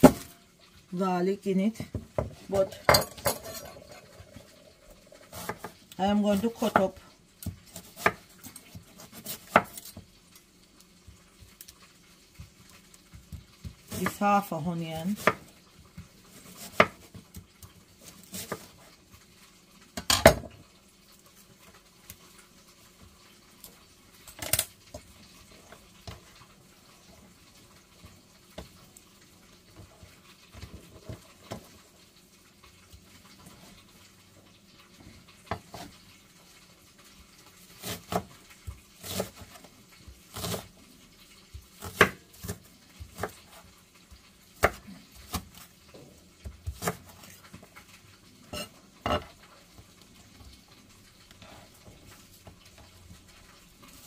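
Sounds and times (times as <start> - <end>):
knife chopping on wooden board: 8.8 - 10.0, 16.6 - 17.0, 41.8 - 43.4.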